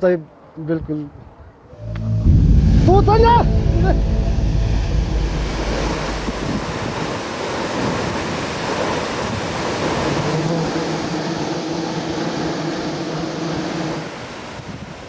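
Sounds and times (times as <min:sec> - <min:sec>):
faint low hum: 0:01.8 - 0:07.2
waterfall rushing: 0:01.8 - 0:11.1.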